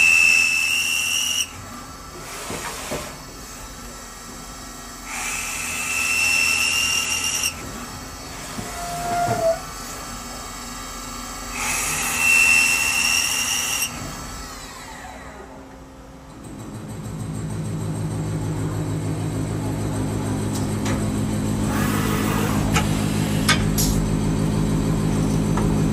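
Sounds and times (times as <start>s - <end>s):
drill whining into metal: 5.0s - 7.6s, 11.5s - 14.0s.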